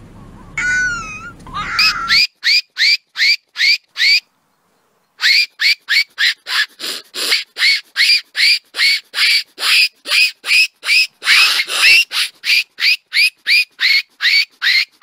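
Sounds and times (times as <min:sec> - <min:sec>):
long wavering call: 0:00.0 - 0:04.2, 0:05.2 - 0:15.0
fox barking: 0:00.5 - 0:02.2, 0:11.2 - 0:12.7.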